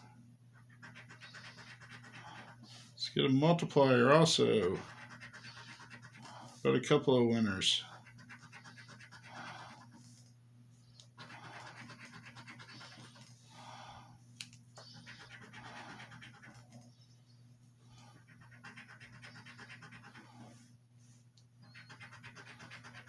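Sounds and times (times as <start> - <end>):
coin scratching ticket: 0.6 - 2.6, 3.8 - 6.3, 7.7 - 9.9, 11.2 - 13.2, 18.2 - 20.2, 21.7 - 23.0.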